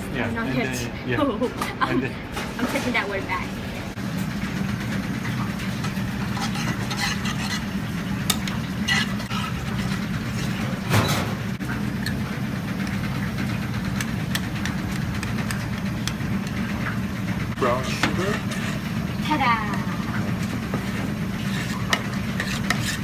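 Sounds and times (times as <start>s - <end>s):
kitchen equipment drone: 0.0s - 23.0s
metal spoon scraping a pan: 5.8s - 11.2s, 17.6s - 18.9s, 21.4s - 23.0s.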